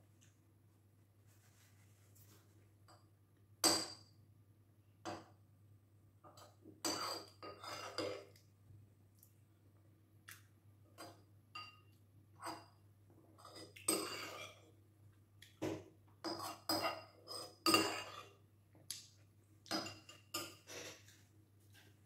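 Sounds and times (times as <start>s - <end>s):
spoon clinking on ceramic bowl: 11.0s - 12.8s, 19.7s - 20.6s.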